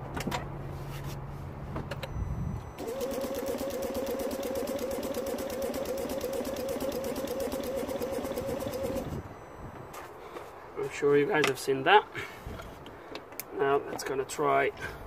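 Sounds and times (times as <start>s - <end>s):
steady low hum: 2.0s - 10.8s
car engine cranking: 2.7s - 9.2s.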